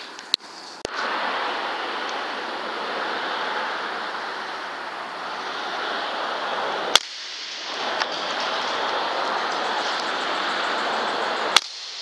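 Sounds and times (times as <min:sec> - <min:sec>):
steady hiss: 0:00.0 - 0:12.0
air rifle shot: 0:06.9 - 0:08.2, 0:11.5 - 0:12.0.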